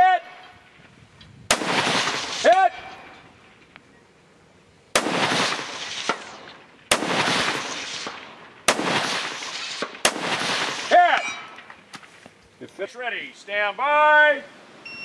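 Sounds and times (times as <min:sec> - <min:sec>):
rifle shots echoing: 0:01.5 - 0:03.1, 0:04.9 - 0:11.7.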